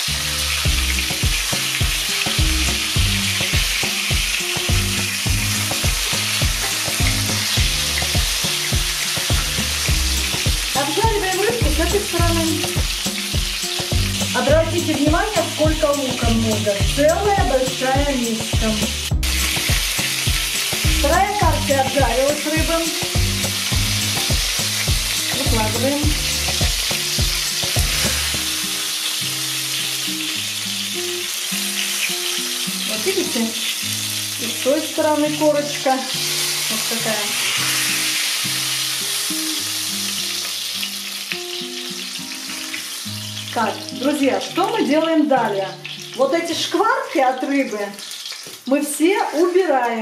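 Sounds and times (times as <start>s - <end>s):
fish sizzling in oil: 0.0s - 50.0s.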